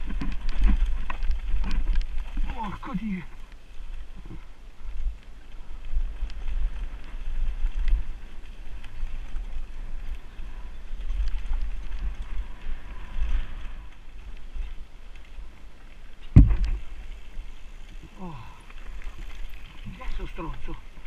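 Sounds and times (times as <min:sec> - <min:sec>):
bike clicks and rattles: 0:00.0 - 0:02.4
hard thump: 0:16.3 - 0:16.8.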